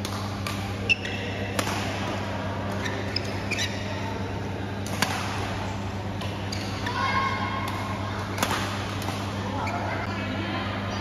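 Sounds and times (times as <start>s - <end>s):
steady low hum: 0.0s - 11.0s
shoes squeaking on court floor: 0.6s - 1.6s, 2.7s - 4.1s, 6.3s - 7.1s
shuttlecock struck by rackets: 1.5s - 2.1s, 4.8s - 5.6s, 7.7s - 9.2s.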